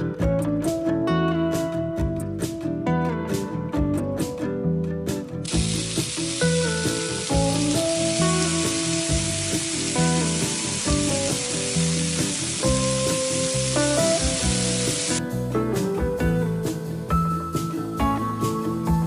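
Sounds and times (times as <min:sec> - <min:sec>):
background music: 0:00.0 - 0:19.0
oil sizzling in a frying pan: 0:05.4 - 0:15.2.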